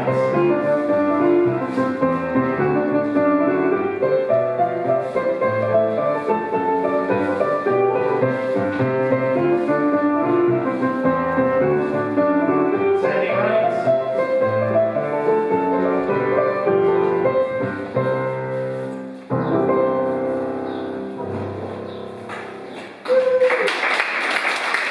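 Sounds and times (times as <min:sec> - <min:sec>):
jig tune for dancing: 0:00.0 - 0:18.4.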